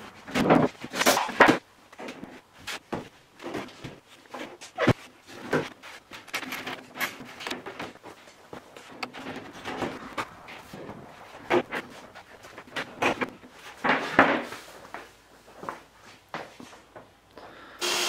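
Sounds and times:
wooden knocks and scrapes: 0.2s - 14.7s.

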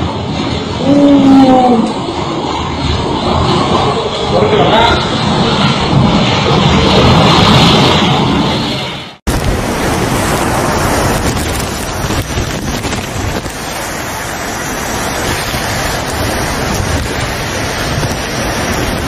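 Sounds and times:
heavy rain: 0.0s - 19.0s
storm wind rumbling on microphone: 0.0s - 19.0s.

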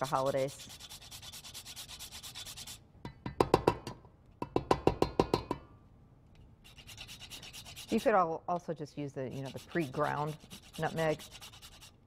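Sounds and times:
nutmeg rasped on a grater: 0.0s - 2.8s, 6.7s - 8.2s, 9.3s - 12.0s
metallic taps on a steel bowl: 3.1s - 5.7s.

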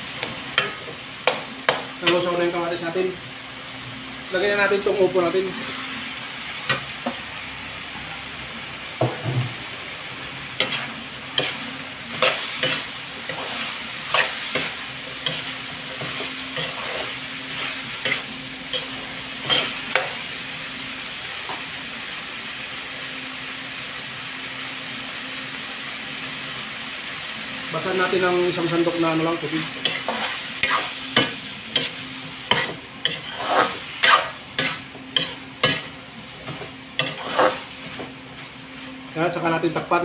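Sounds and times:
food sizzling: 0.0s - 40.0s
metal spatula scraping wok: 10.6s - 20.2s, 28.8s - 38.2s.

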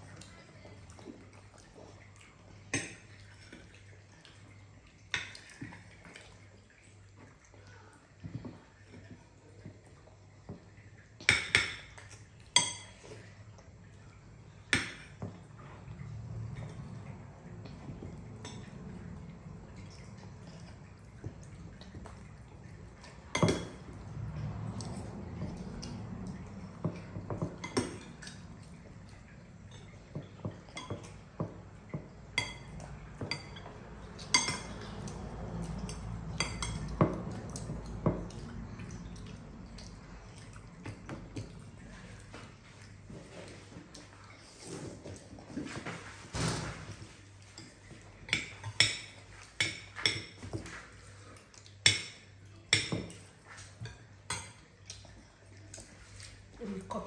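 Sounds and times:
cutlery clinking on ceramic bowls: 11.3s - 13.3s, 17.9s - 18.8s, 23.0s - 24.0s, 29.7s - 38.3s, 47.4s - 50.9s, 51.8s - 54.6s.

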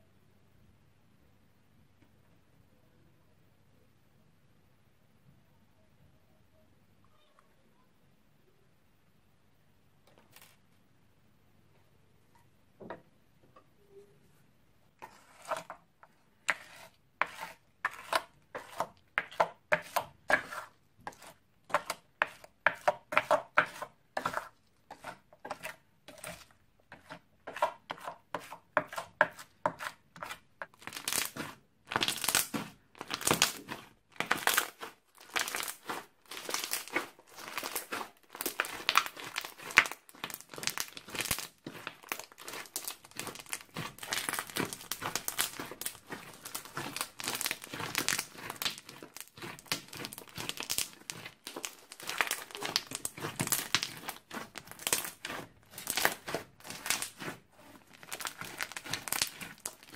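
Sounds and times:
plastic spoon stirring in glass dish: 15.0s - 59.9s
crackly slime squishing: 16.5s - 59.9s.

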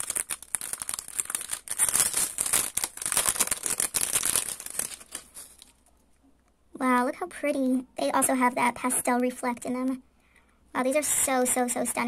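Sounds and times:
plastic bag crinkling: 0.0s - 5.9s.

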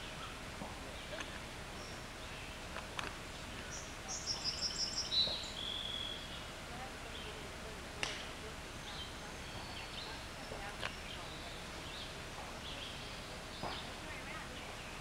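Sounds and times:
outdoor background noise: 0.0s - 15.0s
songbird singing high notes: 3.7s - 6.4s.

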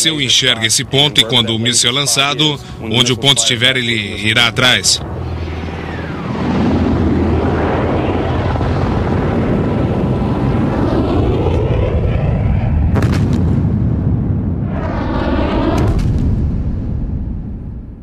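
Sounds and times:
rocket motor and helicopter rushing: 0.1s - 13.7s, 14.5s - 17.2s
missile strike crackling burst: 5.9s - 17.9s.

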